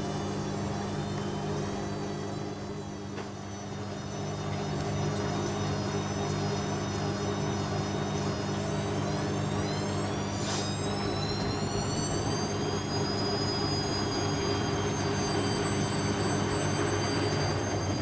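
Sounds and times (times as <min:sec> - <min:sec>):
washing machine motor whine: 0:00.0 - 0:18.0.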